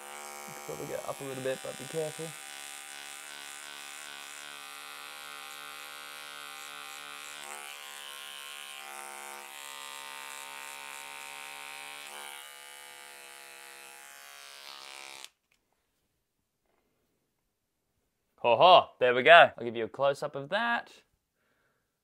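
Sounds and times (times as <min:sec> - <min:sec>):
beard trimmer buzzing: 0:00.0 - 0:15.4.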